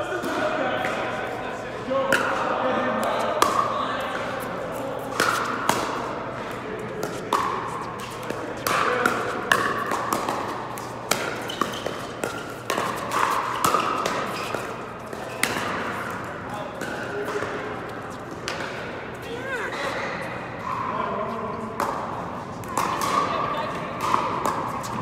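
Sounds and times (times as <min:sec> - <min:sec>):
paddles hitting plastic ball: 0:05.0 - 0:17.7, 0:22.6 - 0:25.0.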